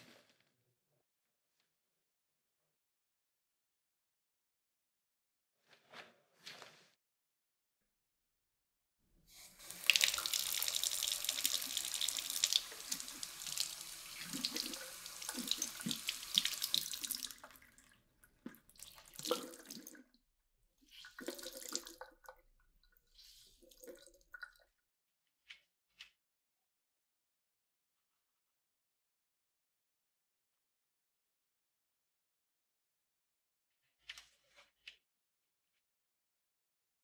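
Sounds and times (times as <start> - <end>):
cloth wrung out splashing: 9.5 - 20.0
tap running into sink: 9.7 - 17.6.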